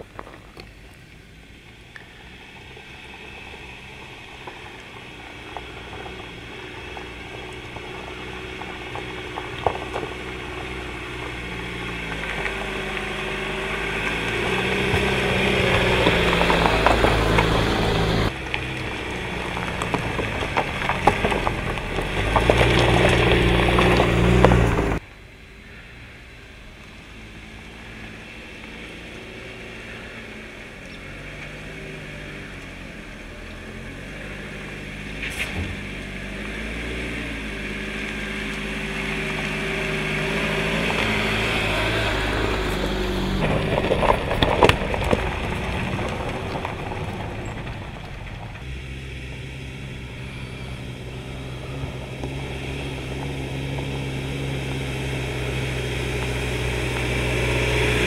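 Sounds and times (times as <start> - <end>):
car engine running at low speed: 0.0 - 58.0
sharp knocks and crackles: 3.5 - 25.0, 38.0 - 48.8.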